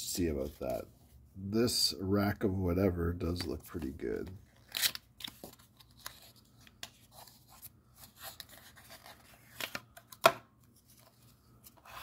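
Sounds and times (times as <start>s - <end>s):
paper rustling: 3.6s - 9.9s.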